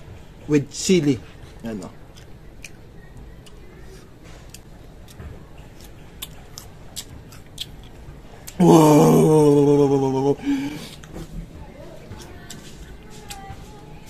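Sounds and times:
crunchy chewing: 0:01.8 - 0:08.6
man's drawn-out voiced sound: 0:08.6 - 0:10.6.

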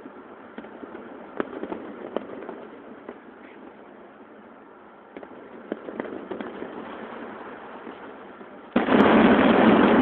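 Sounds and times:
fireworks pops and crackles: 0:00.0 - 0:04.1, 0:05.1 - 0:10.0
loud firework burst: 0:05.1 - 0:10.0.

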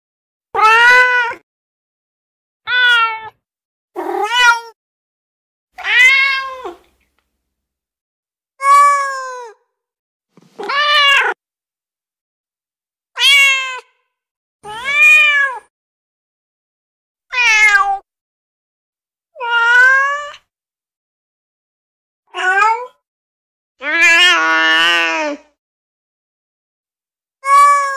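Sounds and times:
cat meowing: 0:00.6 - 0:01.4, 0:02.7 - 0:03.4, 0:04.0 - 0:04.8, 0:05.8 - 0:06.8, 0:08.6 - 0:09.6, 0:10.6 - 0:11.4, 0:13.2 - 0:14.0, 0:14.6 - 0:15.7, 0:17.3 - 0:18.1, 0:19.4 - 0:20.5, 0:22.3 - 0:23.0, 0:23.8 - 0:25.4, 0:27.4 - 0:27.9.

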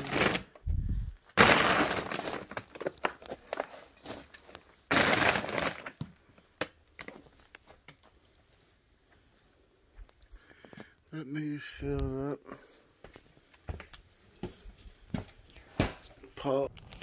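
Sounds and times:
plastic crunching underfoot: 0:00.0 - 0:08.5, 0:13.1 - 0:17.0.

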